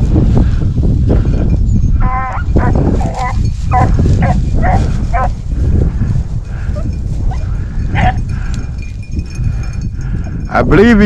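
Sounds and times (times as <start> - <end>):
dogs yelping: 2.0 - 5.4.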